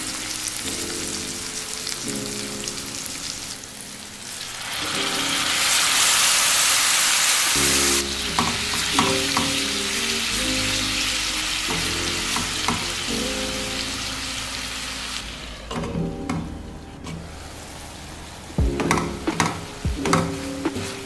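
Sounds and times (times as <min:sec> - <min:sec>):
tomatoes sizzling in a pan: 0:00.0 - 0:15.7
faint background music: 0:07.5 - 0:21.0.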